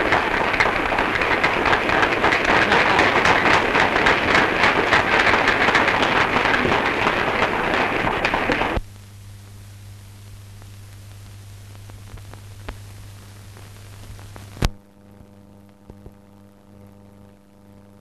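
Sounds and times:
applause: 0:00.0 - 0:08.8
film soundtrack hiss: 0:00.0 - 0:15.0
mains hum: 0:00.0 - 0:18.0.

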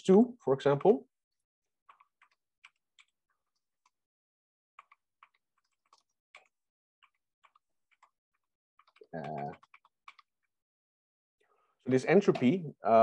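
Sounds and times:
keyboard and mouse clicks: 0:01.8 - 0:04.0, 0:04.7 - 0:10.6, 0:12.1 - 0:12.6.

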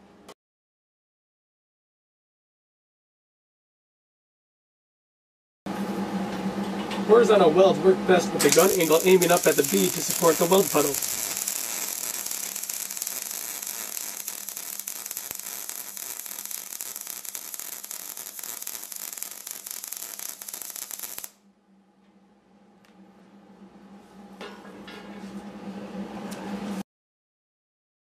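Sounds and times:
welding arc crackling: 0:08.4 - 0:21.4.

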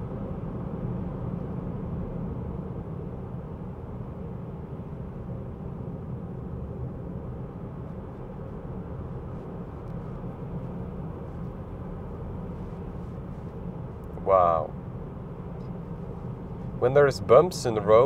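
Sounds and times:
tyre and road noise: 0:06.7 - 0:18.0.

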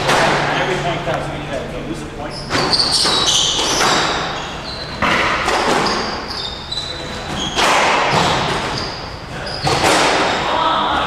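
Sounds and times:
squash ball hitting racket and walls: 0:00.0 - 0:00.7, 0:02.4 - 0:11.0
shoes squeaking on court floor: 0:02.2 - 0:10.0.

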